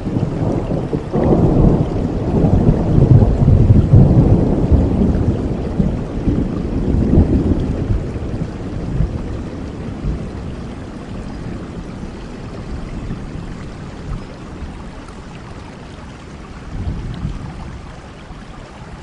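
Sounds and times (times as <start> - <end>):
thunder rolling: 0.0 - 14.3
heavy rain: 0.0 - 19.0.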